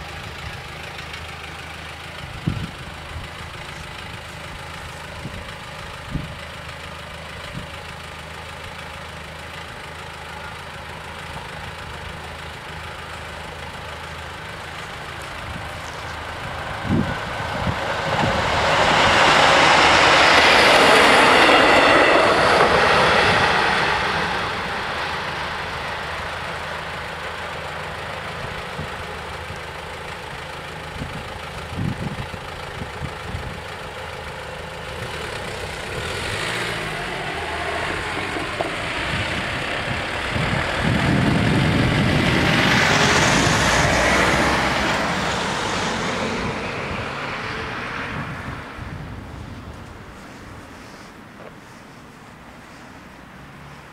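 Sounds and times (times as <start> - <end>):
road vehicles driving over crossing: 0.0 - 53.9
train rushing noise: 14.4 - 28.9, 35.0 - 53.1.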